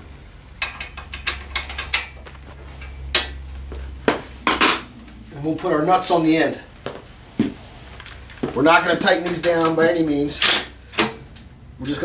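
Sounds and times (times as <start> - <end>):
metallic clicks of bolts and nuts: 0.6 - 2.2.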